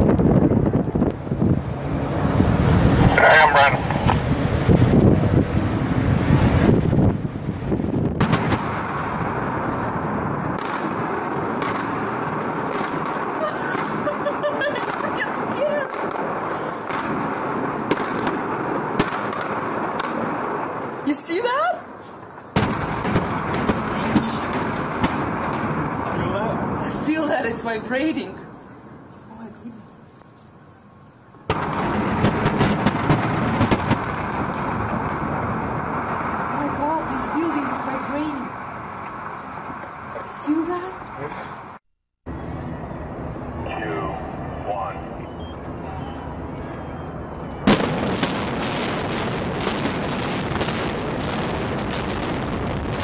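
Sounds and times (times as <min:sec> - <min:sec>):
steady noise: 0:00.0 - 0:29.2
explosive demolition charges cracking: 0:06.2 - 0:14.0, 0:22.6 - 0:26.8, 0:31.5 - 0:38.3, 0:47.6 - 0:53.0
sharp cracks: 0:08.1 - 0:09.5, 0:10.5 - 0:21.1, 0:21.9 - 0:26.4, 0:31.4 - 0:37.7
building collapse rumble: 0:31.5 - 0:40.4.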